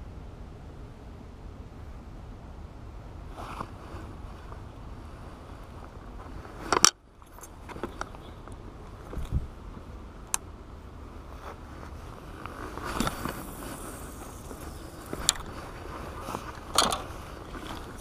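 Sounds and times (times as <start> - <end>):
jacket rustling: 3.3 - 8.3, 11.0 - 18.0.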